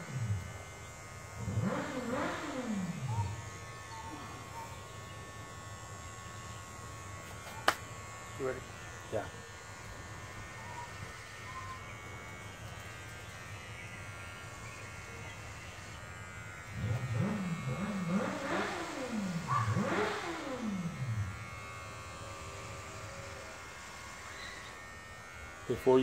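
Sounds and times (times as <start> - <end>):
vehicle engine revving: 0.0 - 4.5, 16.6 - 23.5
electric hair clippers buzzing: 0.0 - 26.0.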